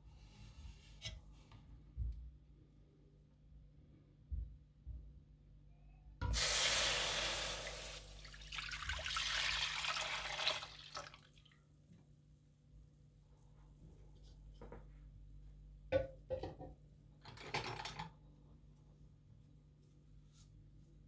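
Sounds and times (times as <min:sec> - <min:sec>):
milk pouring into pan: 0:06.6 - 0:11.4.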